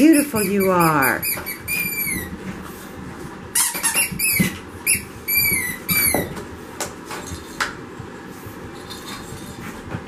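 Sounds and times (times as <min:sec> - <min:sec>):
squeaky dog toys squeaking: 0:00.0 - 0:02.4, 0:03.5 - 0:06.3.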